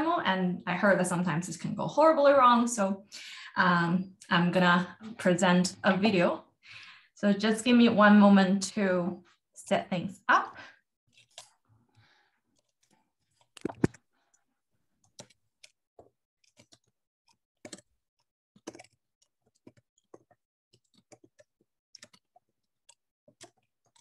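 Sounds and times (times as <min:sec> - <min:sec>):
mouse and keyboard clicks: 0:13.3 - 0:14.0, 0:15.1 - 0:17.9, 0:18.6 - 0:22.3.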